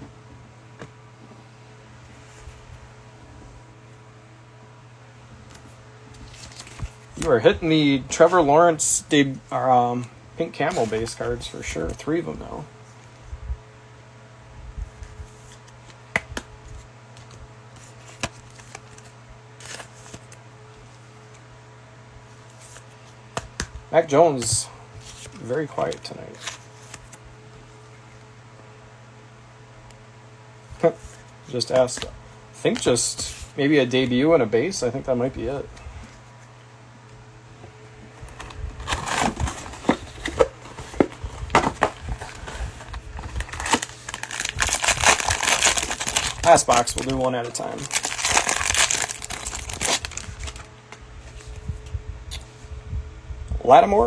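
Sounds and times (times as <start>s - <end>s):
faint steady hum: 0.0s - 54.0s
cards rustling: 5.5s - 8.9s, 10.0s - 12.2s, 15.4s - 20.4s, 24.4s - 27.2s, 38.2s - 51.6s
cellophane packs crinkling: 38.3s - 50.7s
cardboard box tearing: 38.8s - 40.6s, 43.2s - 46.8s, 47.8s - 50.6s.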